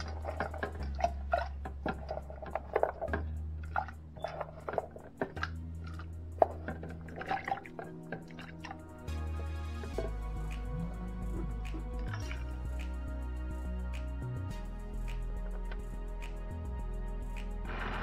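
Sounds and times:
background music with bass: 0:00.0 - 0:18.0.

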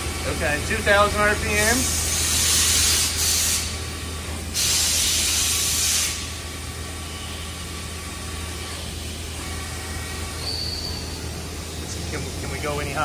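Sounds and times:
machine spindle hum with whine: 0:00.0 - 0:13.0
loud hiss: 0:01.5 - 0:03.8, 0:04.5 - 0:06.5.

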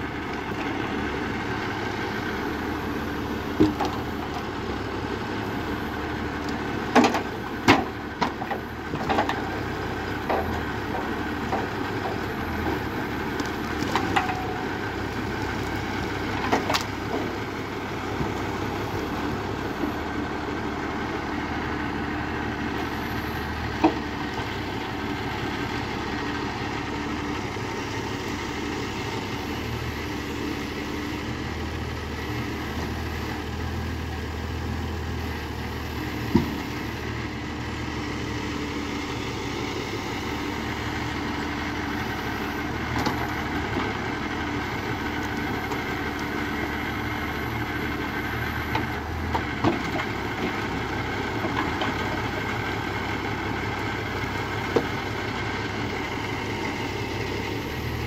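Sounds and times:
tractor diesel engine running: 0:00.0 - 0:58.0
logs knocking together: 0:03.4 - 0:04.6, 0:06.4 - 0:19.2, 0:23.7 - 0:24.6, 0:36.2 - 0:36.7, 0:42.8 - 0:44.0, 0:48.3 - 0:53.1, 0:53.8 - 0:55.5.

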